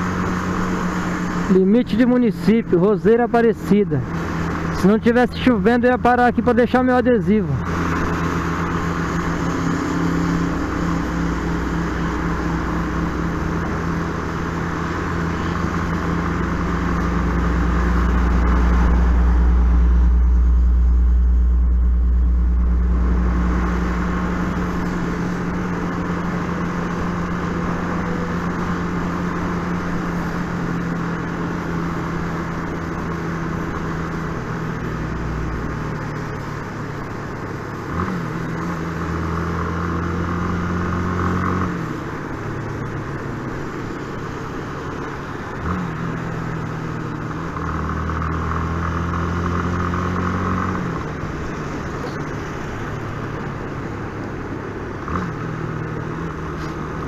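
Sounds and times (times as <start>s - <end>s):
motorcycle engine hum: 0.0s - 57.0s
wind and road noise: 0.0s - 57.0s
deep rumble: 7.5s - 30.8s.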